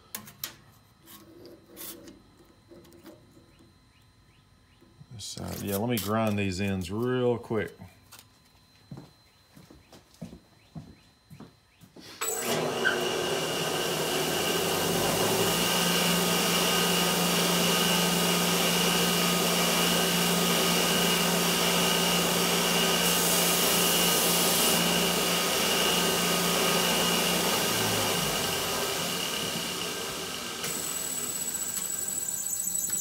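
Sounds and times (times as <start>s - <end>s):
grinder running: 12.2s - 33.0s.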